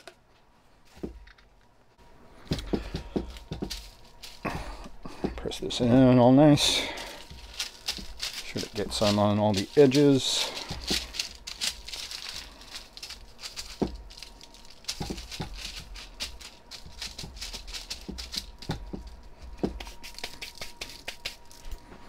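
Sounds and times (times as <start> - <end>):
hands patting meat: 2.4 - 5.5, 6.6 - 12.6, 13.2 - 21.5.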